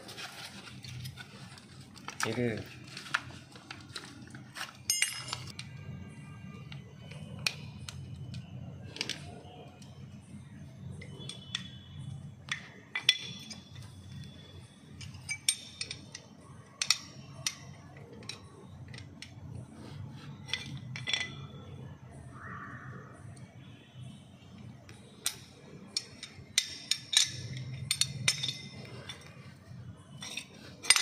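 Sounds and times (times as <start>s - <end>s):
sharp metallic clicks and clinks: 4.8s - 5.9s, 6.6s - 19.6s, 24.9s - 31.0s.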